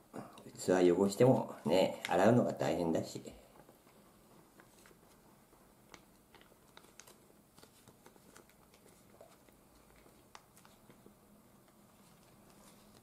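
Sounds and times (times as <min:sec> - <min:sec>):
plastic pouch rustling: 0:04.5 - 0:13.0.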